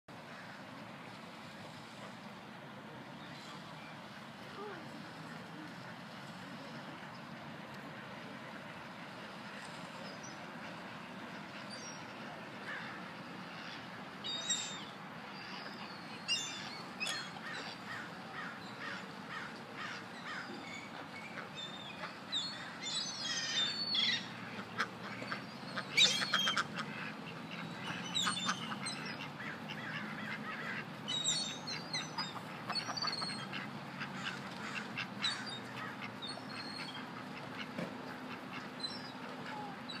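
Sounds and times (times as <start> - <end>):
outdoor background noise: 0.1 - 40.0
ducks quacking: 21.0 - 40.0.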